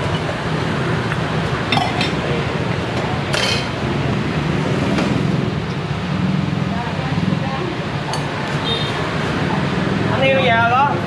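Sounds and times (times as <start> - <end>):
utensils and bowls clinking: 3.3 - 3.8.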